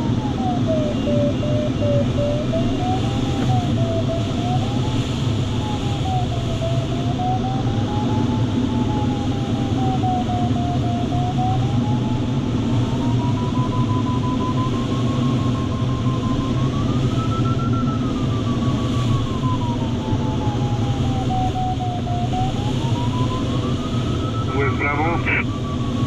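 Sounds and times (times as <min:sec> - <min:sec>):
airflow rush in cockpit: 0:18.1 - 0:26.0
variometer audio tone: 0:24.1 - 0:25.5.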